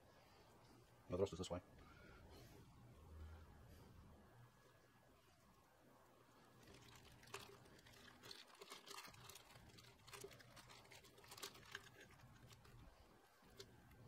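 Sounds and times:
small crackles: 0:04.6 - 0:14.0
plastic bag crinkling: 0:06.6 - 0:14.0.

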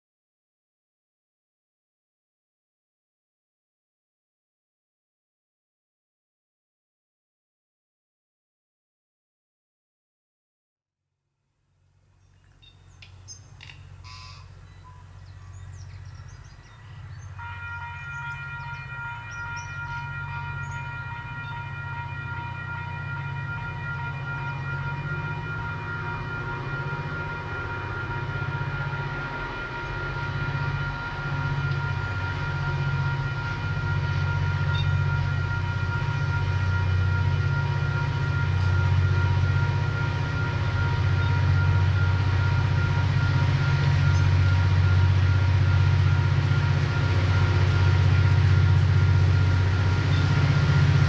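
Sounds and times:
locomotive engine rumble: 0:12.4 - 0:51.0
level crossing alarm ringing: 0:16.6 - 0:51.0.

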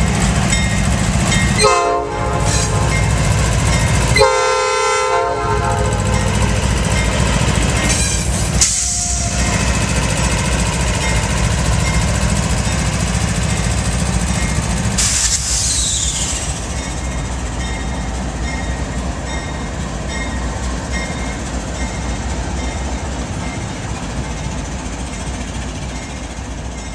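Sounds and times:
crossing bell dinging: 0:00.0 - 0:08.2, 0:10.9 - 0:14.8, 0:16.8 - 0:24.6
diesel locomotive engine rumbling: 0:00.0 - 0:26.9.

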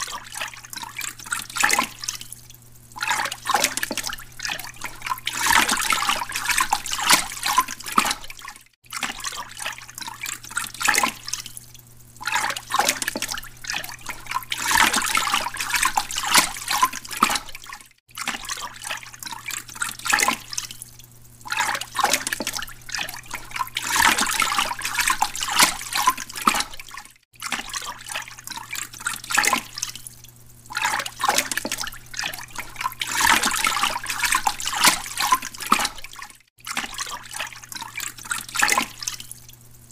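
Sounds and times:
low pump hum: 0:00.0 - 0:36.2
aquarium water splashing and trickling: 0:00.0 - 0:39.9.

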